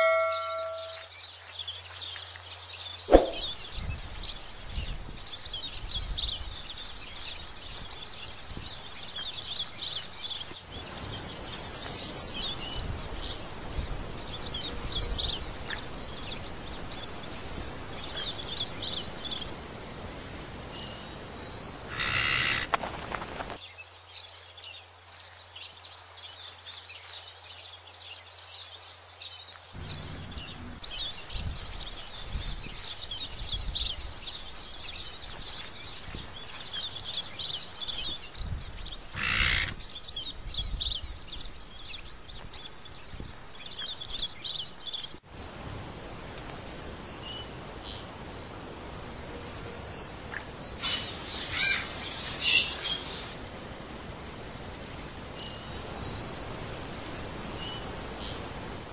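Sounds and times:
birds chirping: 0.0 - 1.1, 3.1 - 4.6, 5.2 - 23.6, 29.7 - 58.9
loud high-pitched bird call: 0.0 - 1.1, 39.2 - 39.8, 50.8 - 53.4.

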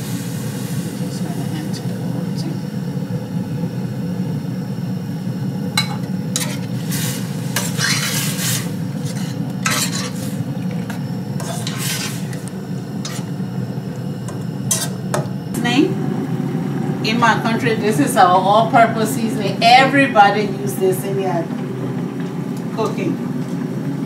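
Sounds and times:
food sizzling: 0.0 - 23.8
steady low hum: 0.0 - 24.0
spoon tapping pan: 5.8 - 6.6
metal spoon scraping pan: 5.8 - 13.4, 14.3 - 15.2.

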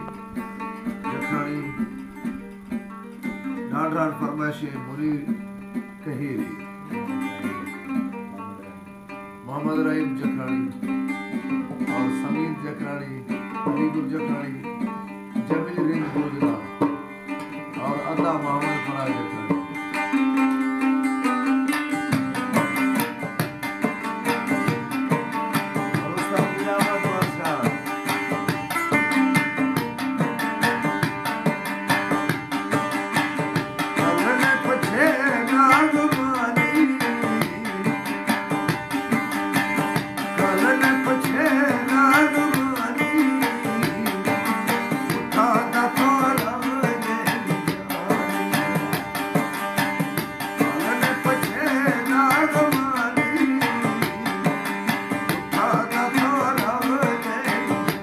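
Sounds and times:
lutes strummed: 0.0 - 58.0
man singing: 1.0 - 2.0, 3.7 - 5.4, 9.4 - 10.9, 11.8 - 14.8, 15.4 - 16.8, 25.8 - 28.2, 33.8 - 38.4, 40.2 - 49.3, 50.5 - 58.0.

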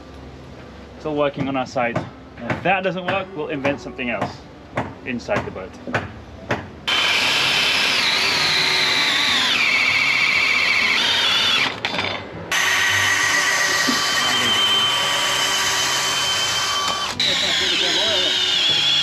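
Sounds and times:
electric drill whining: 6.9 - 19.0.

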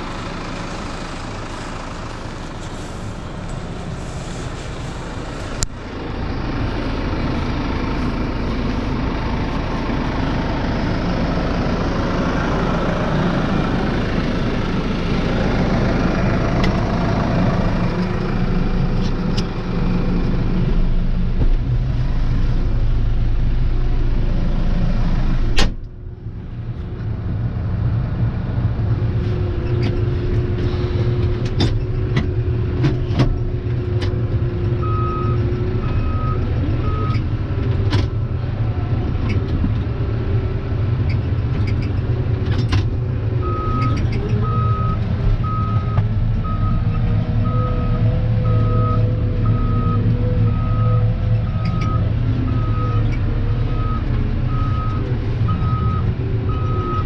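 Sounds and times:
tractor diesel engine running: 0.0 - 57.0
reversing alarm beeping: 43.4 - 57.0.

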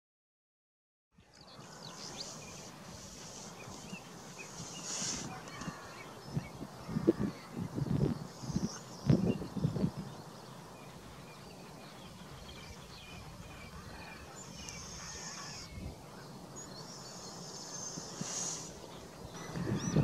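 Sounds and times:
skylarks singing: 1.2 - 20.0
wind on microphone: 1.6 - 16.3, 17.2 - 20.0.

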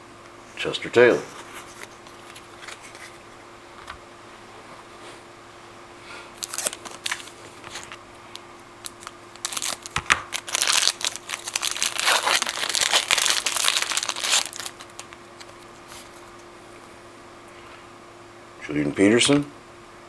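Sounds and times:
wrapper tearing and crinkling: 6.4 - 8.0, 8.8 - 15.7.

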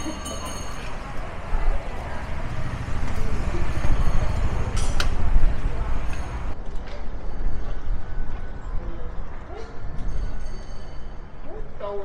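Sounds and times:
road traffic: 0.0 - 10.3
wind rumbling on microphone: 0.8 - 10.5.

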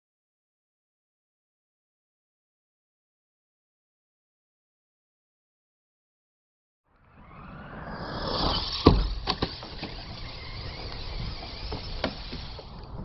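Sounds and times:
electric motors whining: 6.9 - 13.0.

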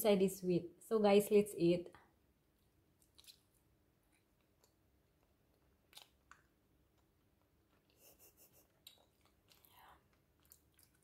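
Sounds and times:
chewing with mouth closed: 2.6 - 8.0, 8.6 - 11.0.

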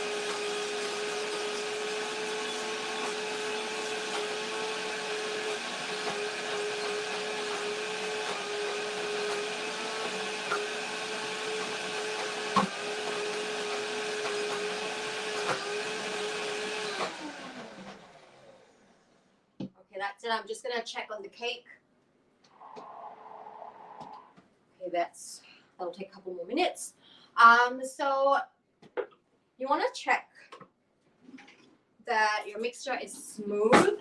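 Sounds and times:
blender motor whine: 0.0 - 19.0.

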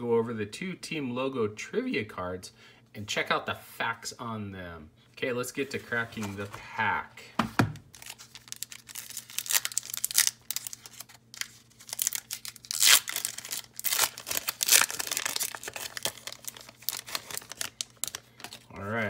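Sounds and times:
foil wrapper tearing and crinkling: 7.9 - 18.7.

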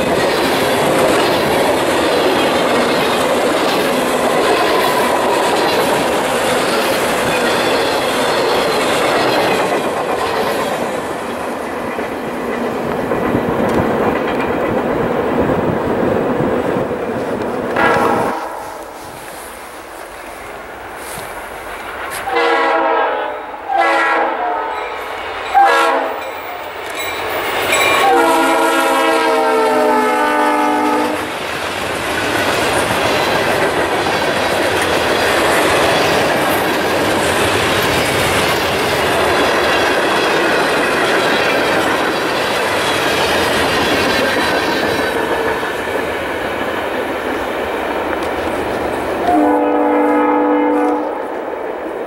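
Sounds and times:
freight train clattering over rails: 0.0 - 52.0
train air horn blasts: 17.8 - 19.2, 22.1 - 24.9, 25.5 - 26.3, 28.0 - 31.3, 49.2 - 51.3.

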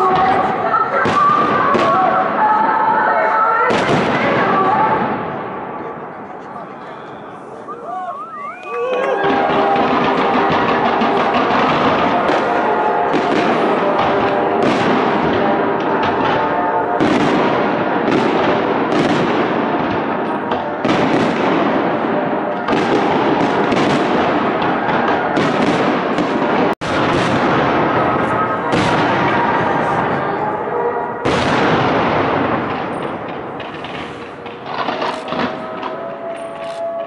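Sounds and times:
fireworks crackle and rumble: 0.0 - 37.0
firework shells bursting with bangs: 8.8 - 30.3, 31.1 - 37.0.

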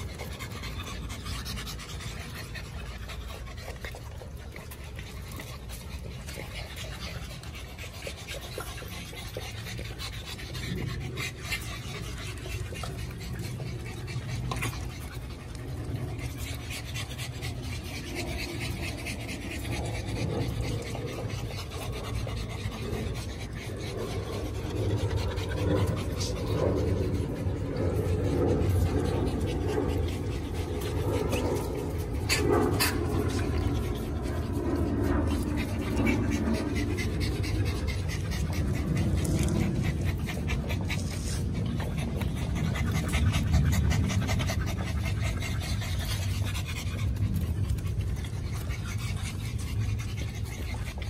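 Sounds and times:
low hum: 0.0 - 51.0
puppies panting: 0.0 - 51.0.

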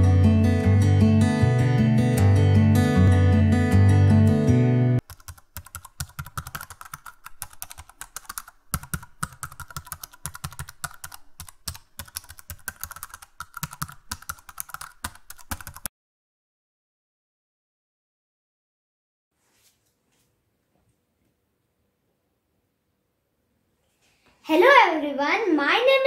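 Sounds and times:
strummed acoustic guitar: 0.0 - 5.0
keyboard typing clicks: 5.0 - 15.9.

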